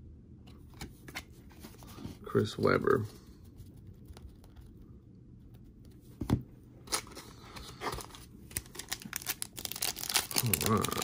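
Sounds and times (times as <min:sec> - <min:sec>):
crinkling of cards and wrapper: 0:06.9 - 0:11.0.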